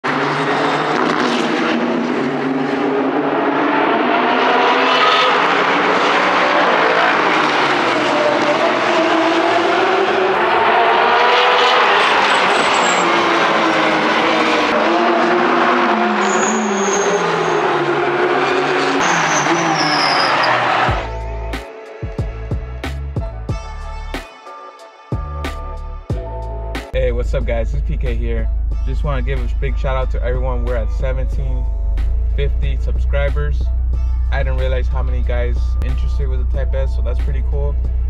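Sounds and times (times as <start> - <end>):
race cars passing at speed: 0.0 - 21.0.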